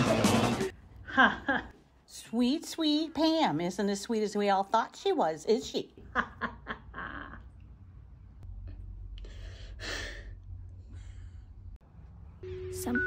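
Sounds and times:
person breathing out: 9.2s - 11.7s.

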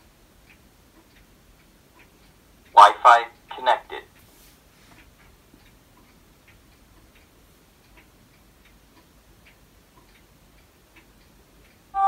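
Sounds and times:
clock ticking: 0.0s - 4.3s, 4.9s - 12.0s.

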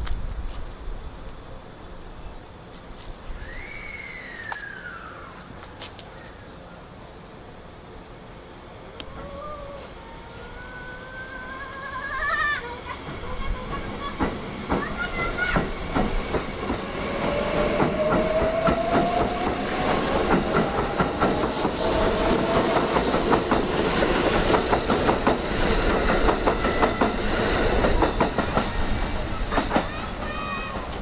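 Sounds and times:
electric train motor whine: 8.1s - 12.5s
train wheels clicking over rail joints: 11.7s - 31.0s.

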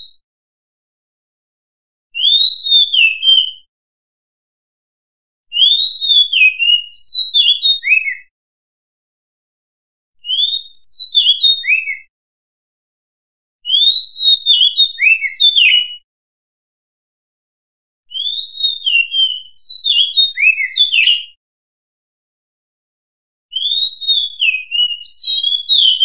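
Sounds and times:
bird singing whistled notes: 2.2s - 3.7s, 5.5s - 8.3s, 10.2s - 12.1s, 13.7s - 16.0s, 18.1s - 21.4s, 23.5s - 26.0s.

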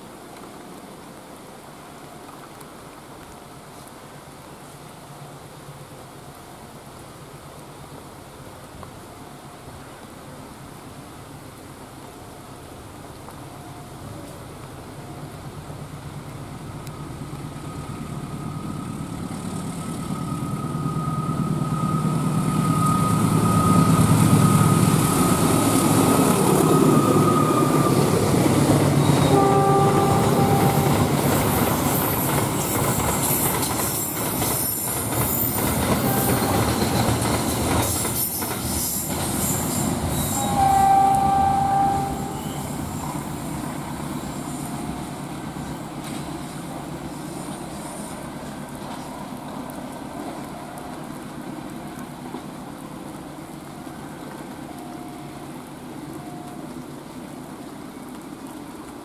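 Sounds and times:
diesel locomotive rumble: 13.5s - 57.3s
brief high-pitched tones: 29.1s - 31.1s, 40.3s - 42.8s.

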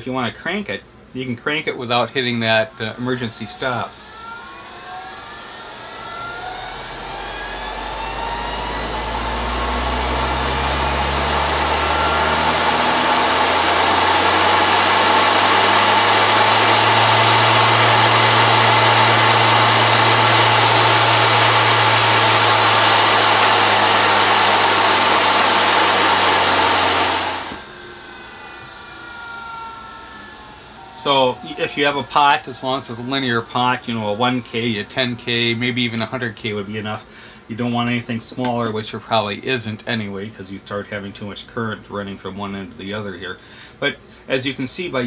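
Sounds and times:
treadmill motor whine: 2.4s - 37.8s.

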